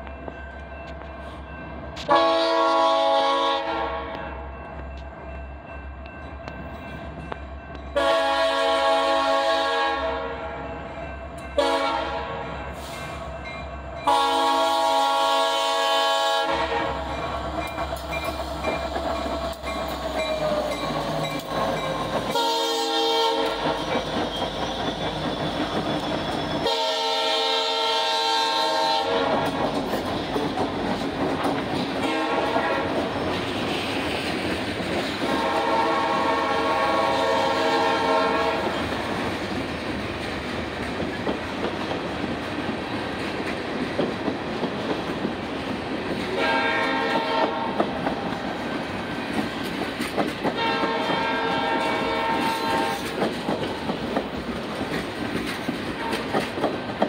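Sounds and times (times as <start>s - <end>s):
locomotive air horn: 2.0s - 4.4s, 8.0s - 10.6s, 11.6s - 13.0s, 14.1s - 17.1s, 22.3s - 24.0s, 26.6s - 29.5s, 32.0s - 32.9s, 35.3s - 38.8s, 46.3s - 47.8s, 50.5s - 53.2s, 56.0s - 56.4s.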